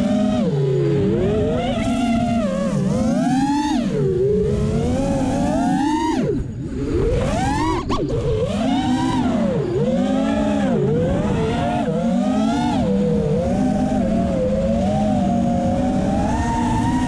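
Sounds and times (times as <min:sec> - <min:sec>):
drone motors and propellers whining: 0:00.0 - 0:17.0.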